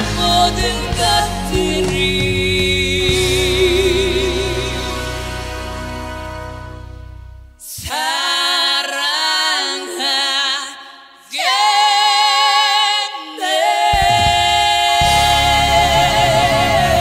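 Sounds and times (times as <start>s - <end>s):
solo voice singing with vibrato: 0.0s - 5.2s, 7.6s - 17.0s
instrumental backing with bass: 0.0s - 7.6s, 14.0s - 17.0s
song playing: 0.0s - 7.6s, 13.7s - 17.0s.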